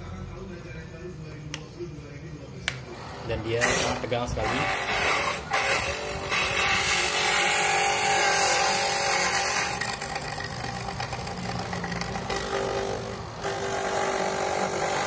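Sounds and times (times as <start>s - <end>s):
electric coconut grater whirring: 3.8s - 15.0s.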